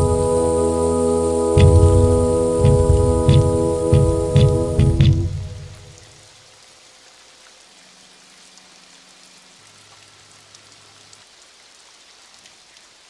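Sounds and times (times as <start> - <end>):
low held musical notes: 0.0 - 6.2
record surface hiss and crackle: 0.0 - 13.0.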